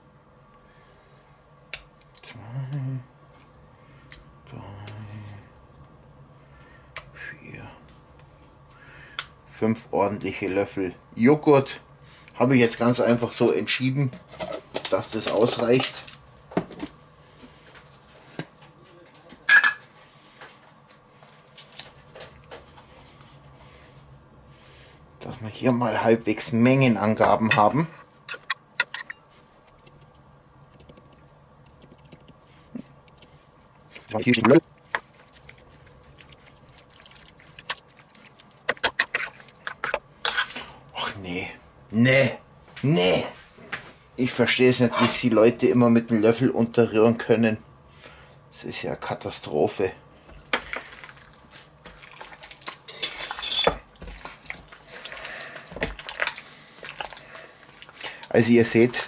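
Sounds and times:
meat squishing in marinade: 29.5s - 40.7s, 50.4s - 53.0s, 53.7s - 59.0s.

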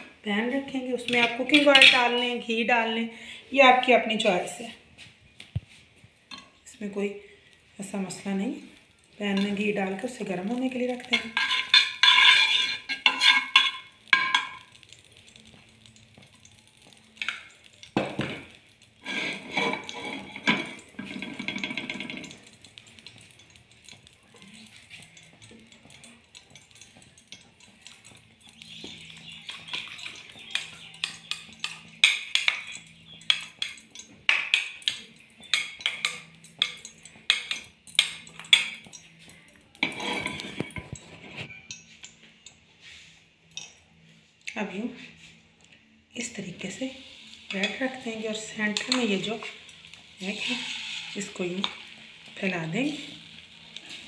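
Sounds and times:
metal spoon scraping a pan: 0.9s - 2.4s, 9.2s - 43.8s, 46.2s - 54.0s
kitchen utensils clinking: 1.0s - 2.4s, 9.3s - 15.6s, 16.4s - 42.6s, 46.3s - 54.0s.

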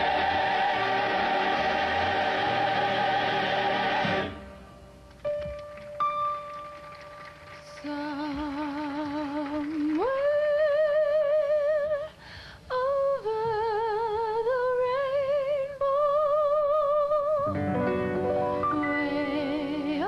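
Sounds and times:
solo voice singing with vibrato: 18.6s - 20.0s.

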